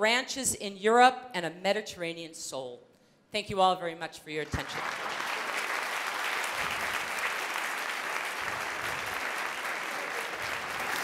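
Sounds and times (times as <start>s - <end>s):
audience applauding: 4.5s - 11.0s.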